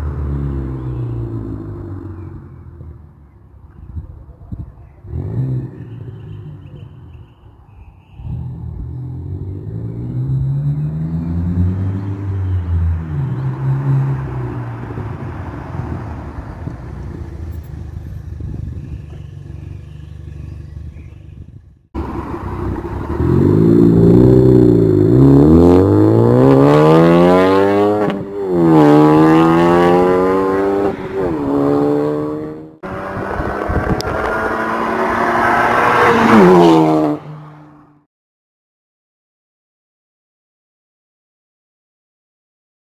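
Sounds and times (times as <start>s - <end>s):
car engine revving: 8.2s - 21.2s, 22.0s - 38.0s.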